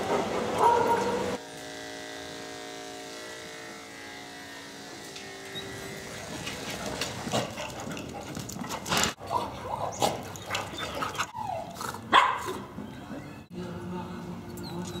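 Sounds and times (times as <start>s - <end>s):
electric clipper humming: 0.6s - 7.2s
dogs yipping and growling: 5.5s - 13.5s.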